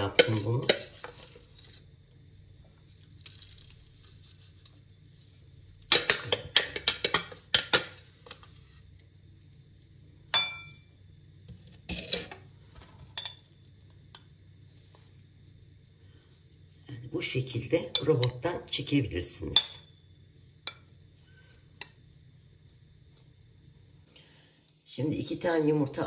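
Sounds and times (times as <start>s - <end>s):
bowl scraping and tapping: 0.0s - 1.8s, 4.1s - 15.6s, 17.8s - 18.6s, 19.4s - 23.3s
glass bowl clink: 10.3s - 10.9s, 13.1s - 13.5s
metal spoon knocking glass bowl: 10.4s - 10.8s.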